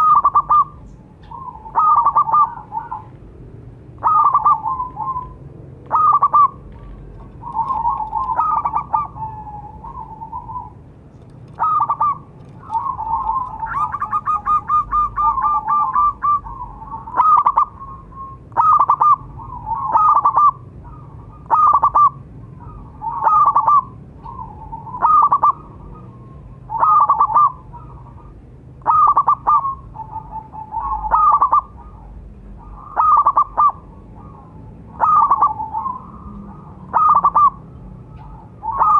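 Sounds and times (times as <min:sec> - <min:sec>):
dove cooing: 0:00.0 - 0:03.2, 0:04.0 - 0:38.9.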